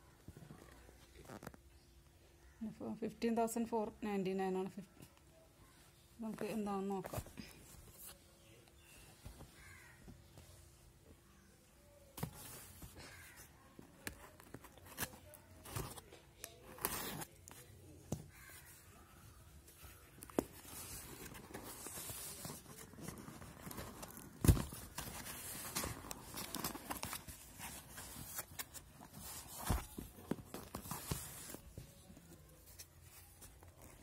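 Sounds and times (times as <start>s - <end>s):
cardboard and tape tearing: 20.8s - 31.7s
cardboard box being opened by hand: 21.0s - 31.9s.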